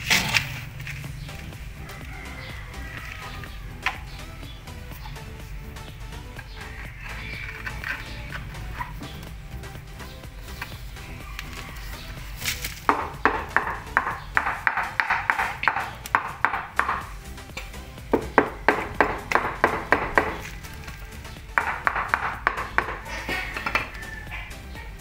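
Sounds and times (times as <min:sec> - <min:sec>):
background music: 0:00.0 - 0:25.0
sharp taps on ceramic tile: 0:12.9 - 0:17.1, 0:21.6 - 0:23.8.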